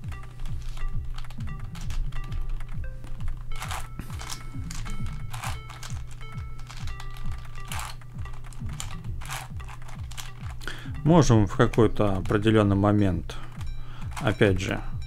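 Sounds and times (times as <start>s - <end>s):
puzzle cube plastic clicks: 0.0s - 10.8s, 13.4s - 14.4s
background music with beat: 0.0s - 15.0s.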